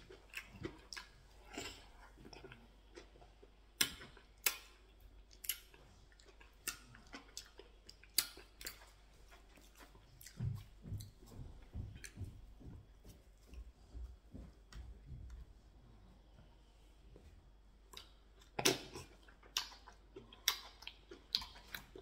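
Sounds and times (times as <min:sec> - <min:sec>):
close-up chewing: 0:00.0 - 0:12.3, 0:17.8 - 0:22.0.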